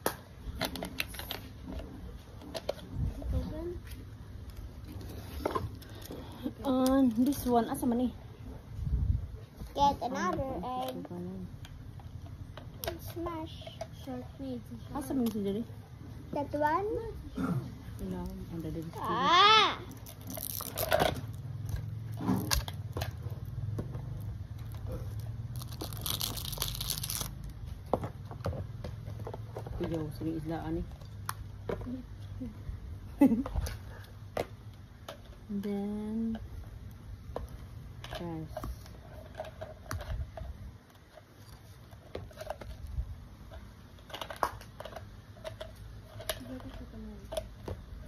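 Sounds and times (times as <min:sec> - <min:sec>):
packaging crinkling and tearing: 0:20.0 - 0:21.4, 0:24.6 - 0:27.6.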